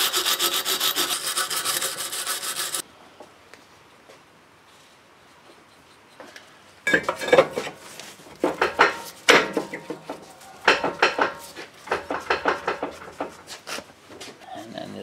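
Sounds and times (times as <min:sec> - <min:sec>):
metal clattering and scraping: 0:06.9 - 0:13.8.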